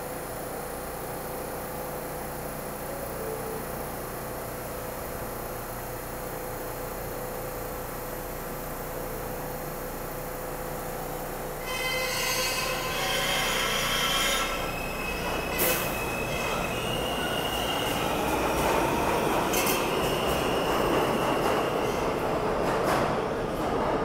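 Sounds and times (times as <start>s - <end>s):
train wheels rumbling on rail: 11.1s - 24.0s
high wheel squeal: 11.6s - 18.2s.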